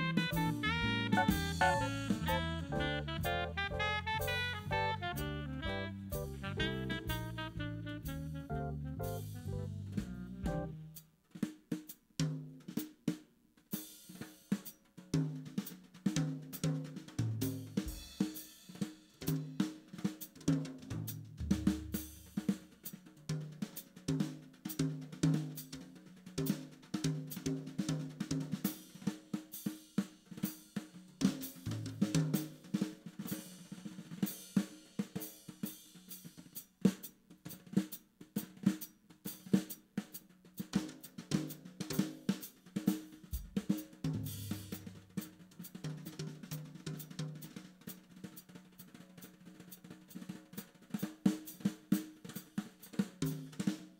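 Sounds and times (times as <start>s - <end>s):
live instrumental band: 0.0s - 11.0s
drum kit playing busily: 0.0s - 53.9s.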